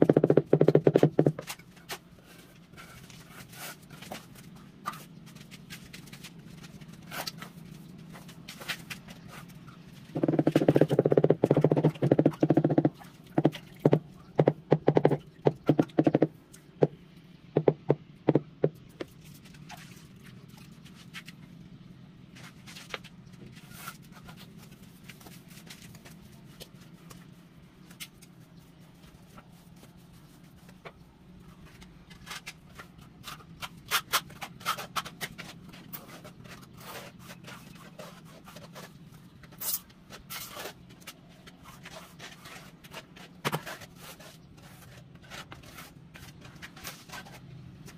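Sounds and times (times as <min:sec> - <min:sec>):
rubber mallet tapping tile: 0:00.0 - 0:01.3, 0:10.2 - 0:16.3, 0:17.6 - 0:18.7
trowel scraping mortar: 0:41.5 - 0:47.9.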